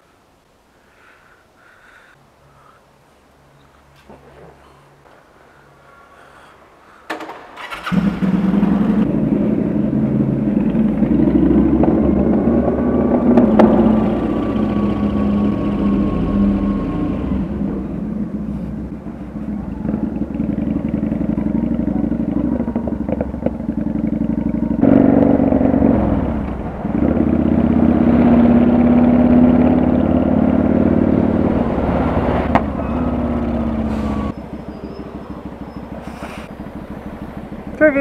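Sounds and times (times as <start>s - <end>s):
motorcycle engine running: 7.6s - 38.0s.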